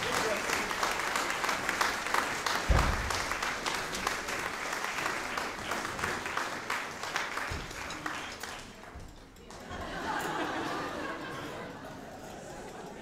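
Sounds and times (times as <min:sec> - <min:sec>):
audience applauding: 0:00.0 - 0:13.0
dull low thump: 0:02.7 - 0:03.1.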